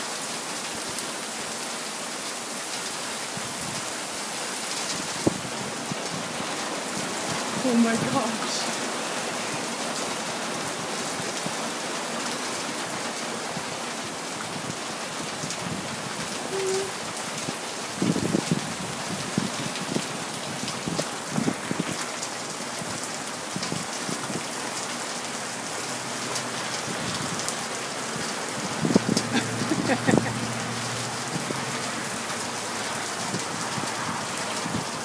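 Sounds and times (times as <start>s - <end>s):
heavy rain: 0.0s - 35.0s.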